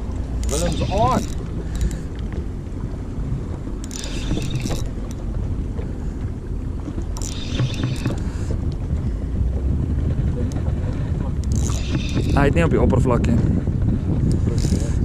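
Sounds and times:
water: 0.0s - 15.0s
wind: 0.0s - 15.0s
spinning reel buzzing: 0.4s - 2.0s, 3.8s - 5.2s, 7.2s - 8.4s, 11.4s - 12.6s, 14.3s - 15.0s.

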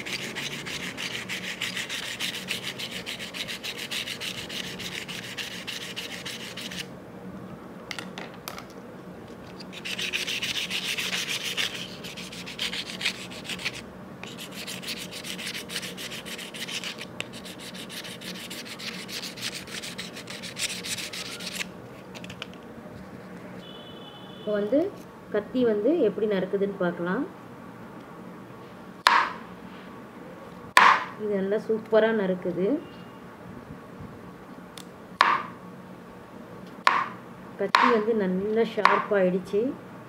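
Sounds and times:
knife scraping on sandpaper: 0.0s - 6.9s, 9.5s - 21.7s.

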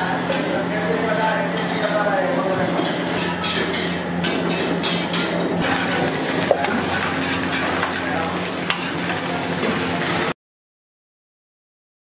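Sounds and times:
hot oil sizzling: 0.0s - 10.4s
ladle stirring: 2.8s - 9.6s.

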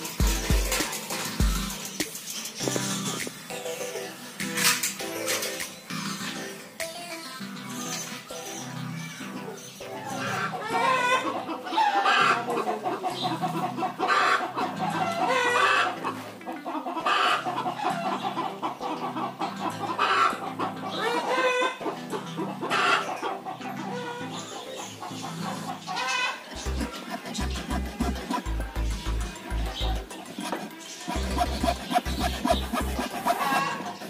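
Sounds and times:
background music: 0.0s - 34.0s
poultry clucking: 9.5s - 34.0s.

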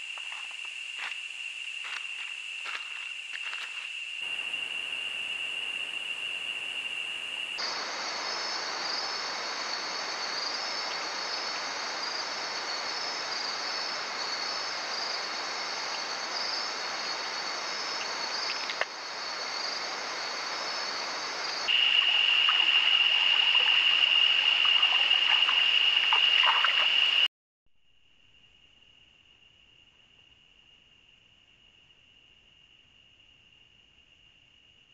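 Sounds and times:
high-pitched insect whine: 0.0s - 27.3s
insects buzzing and chirping: 0.0s - 27.3s.

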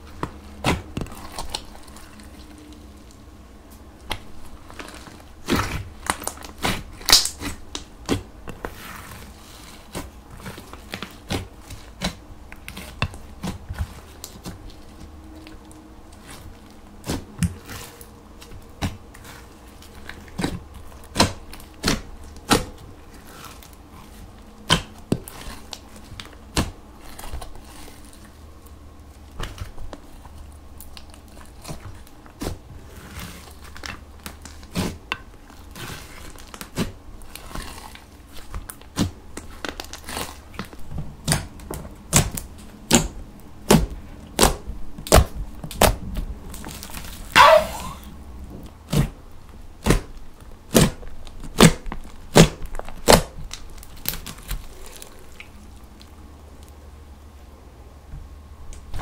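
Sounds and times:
slime squishing and popping: 3.8s - 8.8s, 17.0s - 23.8s, 24.6s - 28.4s, 30.8s - 47.6s, 49.8s - 56.1s.

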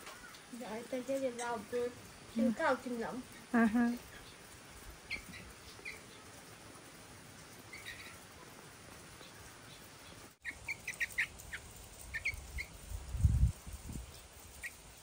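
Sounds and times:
young birds chirping: 0.0s - 6.5s, 7.4s - 12.8s.

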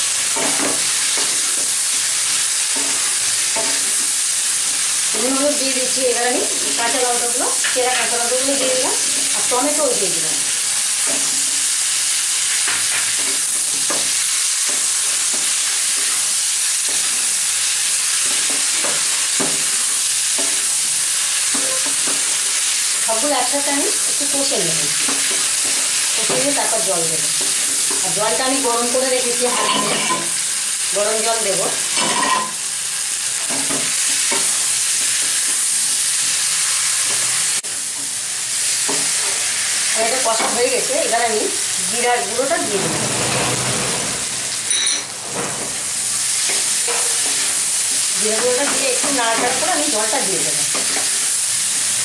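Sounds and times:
vegetables sizzling in oil: 0.0s - 52.0s
spatula scraping and stirring: 29.4s - 30.4s, 31.9s - 32.6s.

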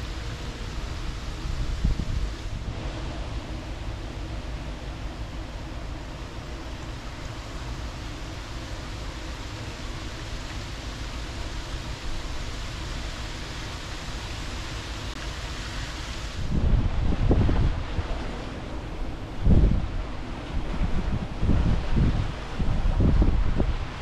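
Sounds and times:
wind buffeting microphone: 0.0s - 7.6s, 16.3s - 24.0s
rushing wind and water: 0.0s - 24.0s.

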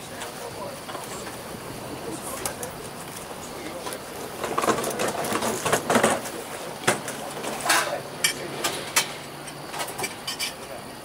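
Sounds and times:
crockery clinking: 7.6s - 10.7s.

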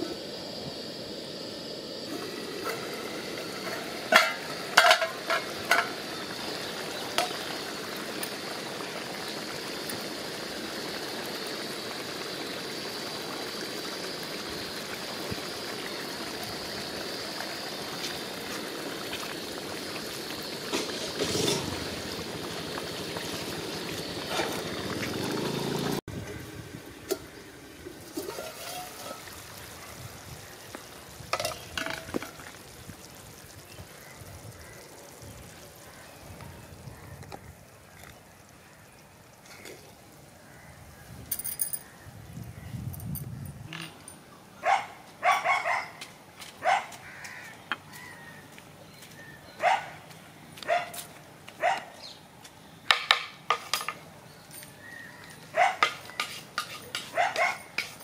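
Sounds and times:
curry simmering and bubbling: 0.1s - 41.1s.

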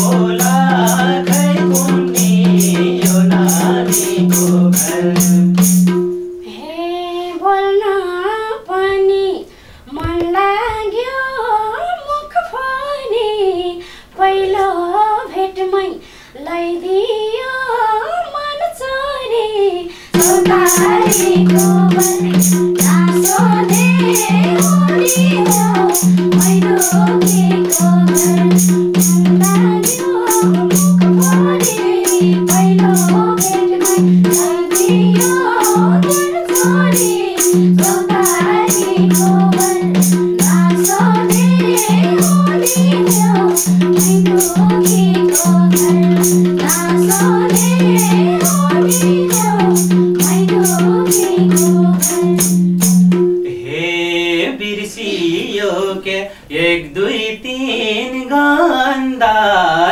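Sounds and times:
woman singing: 0.0s - 5.6s, 6.4s - 52.7s
hand drum rhythm: 0.0s - 6.4s, 20.1s - 53.6s.

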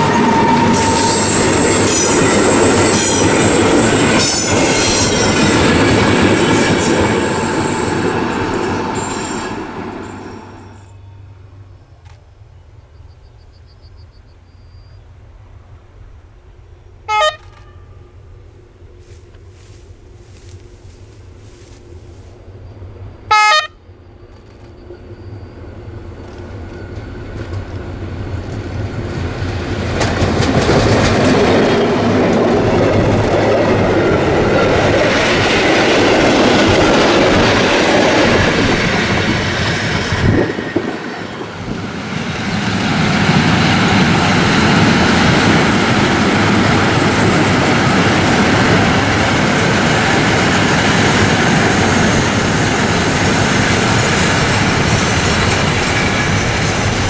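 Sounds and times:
train wheels clattering on rails: 0.0s - 11.0s, 24.2s - 57.0s
diesel locomotive engine: 0.0s - 57.0s
locomotive horn blast: 17.0s - 18.2s, 23.3s - 23.9s.

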